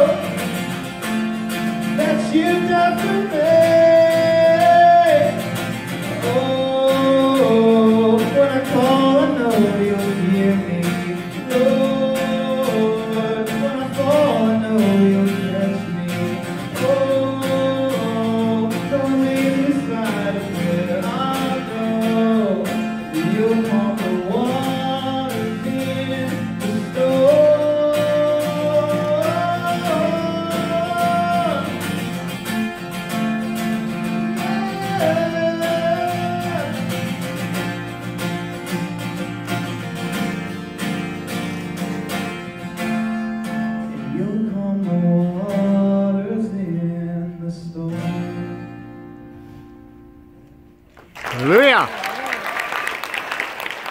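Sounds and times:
man singing into a microphone: 0.0s - 0.4s, 1.8s - 31.8s, 34.1s - 37.1s, 43.9s - 48.5s
acoustic guitar strumming: 0.0s - 51.9s.

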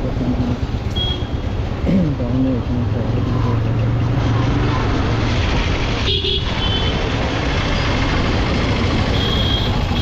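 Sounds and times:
road and wind noise: 0.0s - 10.0s
vehicle horn toot: 1.0s - 1.4s, 6.0s - 6.9s, 9.1s - 10.0s
motorcycle engine running: 3.6s - 10.0s.

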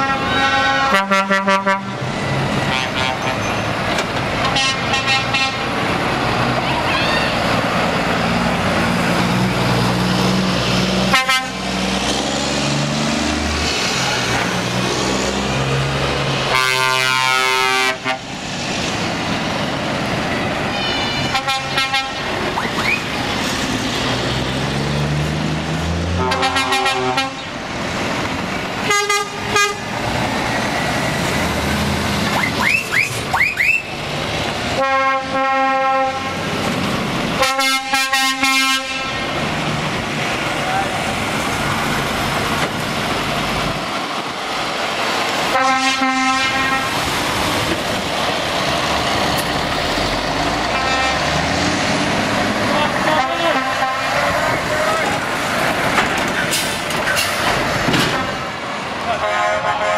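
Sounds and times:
truck horn blasts: 0.0s - 3.6s, 4.4s - 5.7s, 11.0s - 11.8s, 16.5s - 18.3s, 20.7s - 22.3s, 26.1s - 27.5s, 28.8s - 29.9s, 34.8s - 36.4s, 37.4s - 39.2s, 45.5s - 47.0s, 50.7s - 51.4s, 52.8s - 54.6s, 59.1s - 59.9s
truck diesel engines pulling away: 0.0s - 59.9s.

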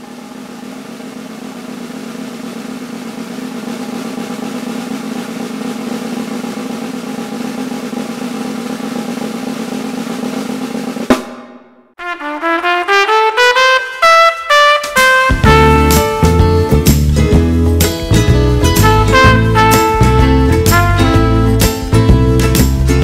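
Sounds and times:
snare drum roll: 0.0s - 23.0s
brass passage: 12.0s - 16.9s, 18.7s - 22.0s.

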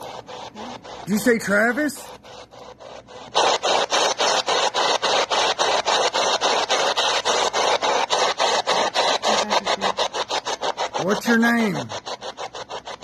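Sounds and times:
radio static chopped into bursts: 2.8s - 13.0s.

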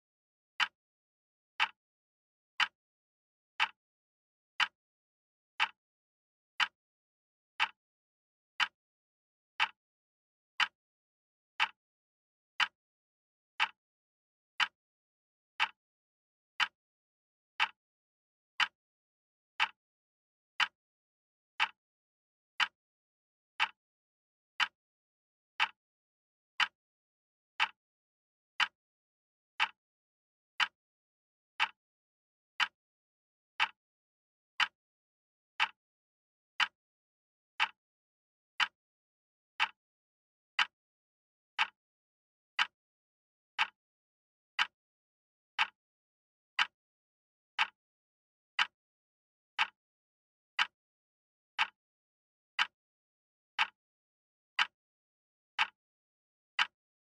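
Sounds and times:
wall clock ticking: 22.6s - 22.8s, 24.6s - 24.8s, 28.6s - 28.8s, 29.6s - 29.8s, 30.6s - 30.8s, 31.6s - 31.8s, 32.6s - 32.8s, 33.6s - 33.8s, 35.6s - 35.8s, 36.6s - 36.8s, 37.6s - 37.8s, 38.6s - 38.8s, 39.6s - 39.8s, 40.6s - 40.8s, 41.6s - 41.8s, 42.6s - 42.8s, 44.6s - 44.8s, 45.6s - 45.8s, 46.6s - 46.8s, 47.6s - 47.8s, 48.6s - 48.8s, 49.6s - 49.8s, 50.6s - 50.8s, 51.6s - 51.8s, 52.6s - 52.8s, 53.6s - 53.8s, 56.6s - 56.8s.

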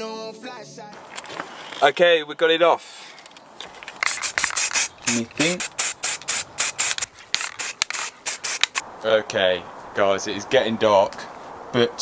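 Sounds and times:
spray paint can hissing: 3.9s - 8.8s.

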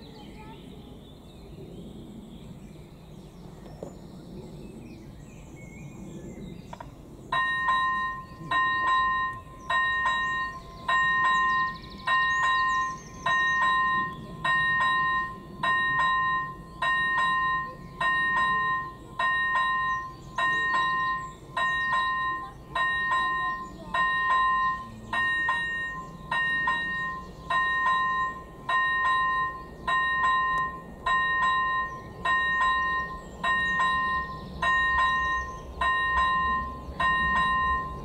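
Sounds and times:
level crossing warning bell: 7.3s - 38.0s.

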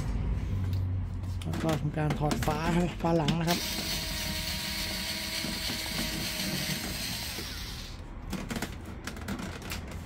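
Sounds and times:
electric screwdriver whirring: 3.4s - 8.0s.

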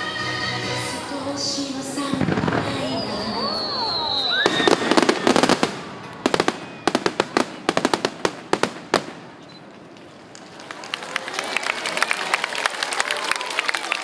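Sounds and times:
fireworks crackling and popping: 2.0s - 10.8s.

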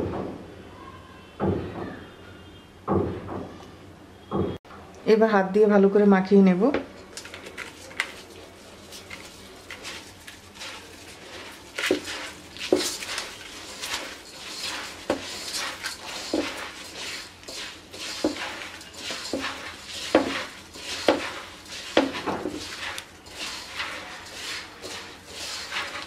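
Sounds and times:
hand mixing rice grains: 7.2s - 26.0s.

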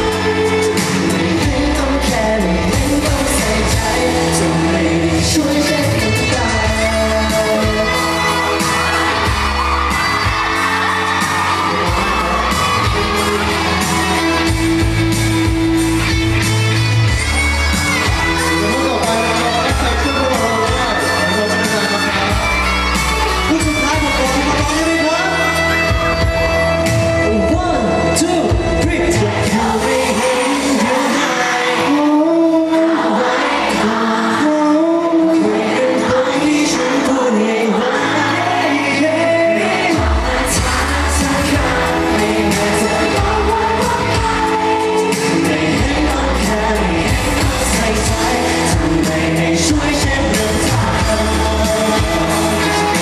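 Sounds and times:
men singing: 0.0s - 14.9s, 28.9s - 53.0s
heavy low drum beats: 0.0s - 30.4s, 39.9s - 53.0s
amplified band track: 0.0s - 53.0s
pop song with male group vocals: 0.0s - 53.0s.

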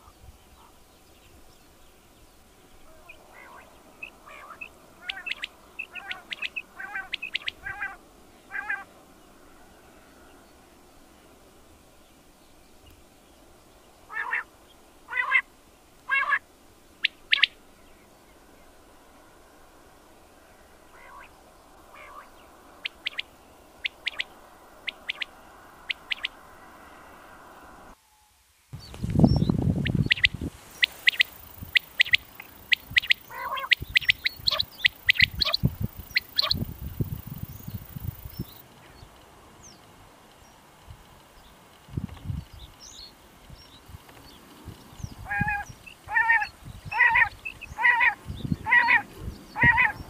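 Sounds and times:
quail calling: 2.9s - 8.9s, 14.1s - 14.5s, 15.1s - 15.5s, 16.1s - 16.4s, 17.0s - 17.6s, 20.9s - 21.3s, 21.9s - 26.4s, 29.8s - 36.7s, 45.2s - 50.0s
low rumbling noise: 17.6s - 28.0s.

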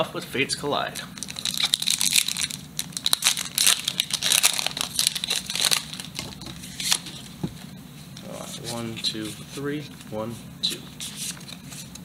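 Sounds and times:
foil wrapper tearing and crinkling: 1.2s - 7.1s.

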